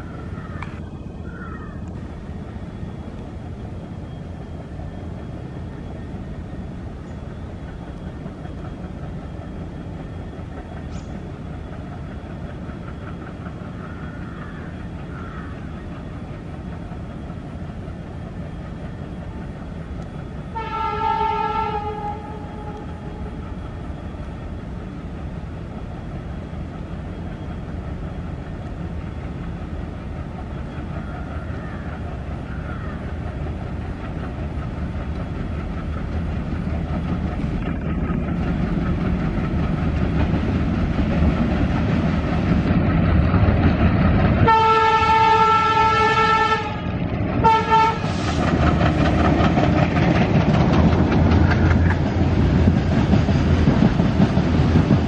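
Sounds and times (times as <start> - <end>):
diesel locomotive rumble: 0.0 - 55.0
locomotive horn blasts: 20.5 - 22.9, 44.4 - 48.1
wheels clattering over rail joints: 28.2 - 46.2, 46.8 - 55.0.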